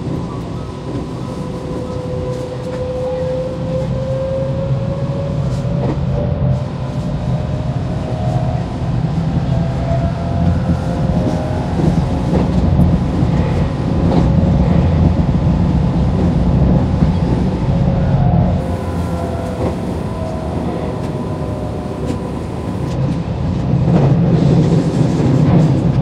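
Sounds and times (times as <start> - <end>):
train wheels rumbling on track: 0.0 - 26.0
train motor whine: 7.0 - 24.7.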